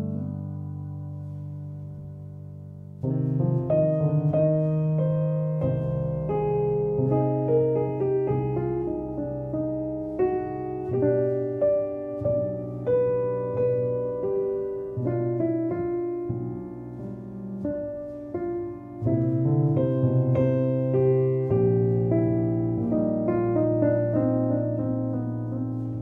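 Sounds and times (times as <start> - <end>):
slow piano melody: 0.0 - 26.0.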